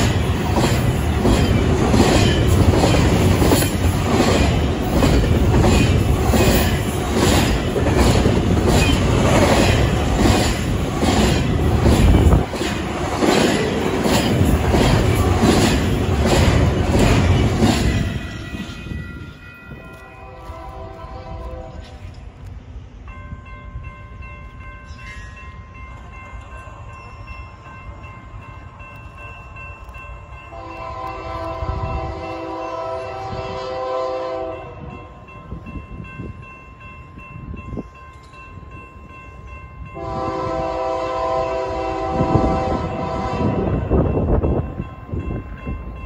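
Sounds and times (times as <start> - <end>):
crossing bell ringing: 0.0 - 22.3, 23.0 - 46.0
train rumble: 0.0 - 46.0
locomotive horn blasts: 19.8 - 22.1, 30.5 - 34.9, 40.0 - 43.9.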